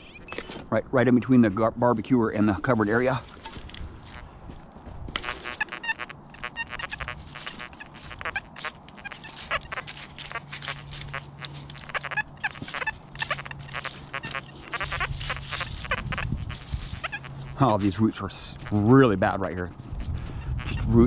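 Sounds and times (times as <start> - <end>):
metal detector buzzy tones: 5.2 - 18.8.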